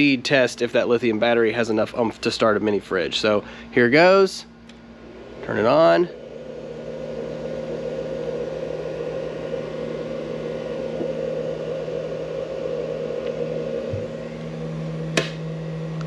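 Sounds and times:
cooling fan whirring: 0.0 - 16.0
fridge compressor humming: 0.0 - 16.0.

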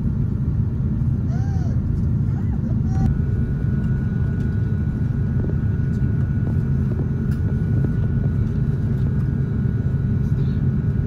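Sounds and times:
aircraft cabin rumble: 0.0 - 11.0
thin steady whine: 0.0 - 11.0.

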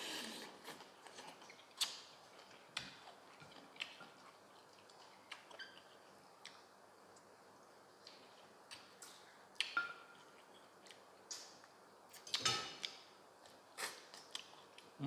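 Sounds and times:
person chewing with mouth clicks: 0.5 - 6.6.

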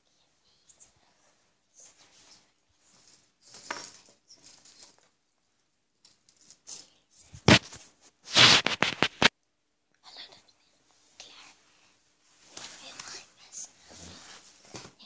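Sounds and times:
loud scraping with clicks: 6.1 - 9.3.

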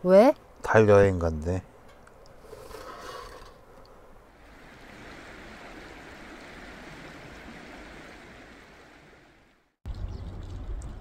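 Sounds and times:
river water rushing: 4.4 - 9.7.

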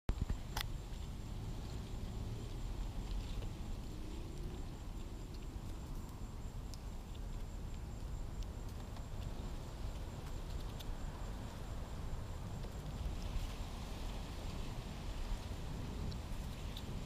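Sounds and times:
birds pecking at peanuts: 0.2 - 17.0
wind on microphone: 9.3 - 17.0.

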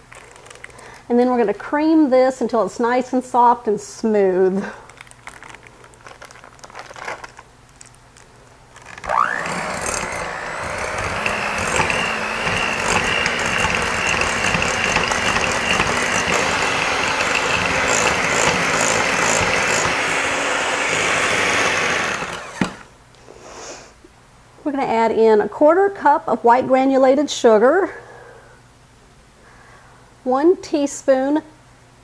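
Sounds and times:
electric hand mixer running: 8.9 - 22.9.

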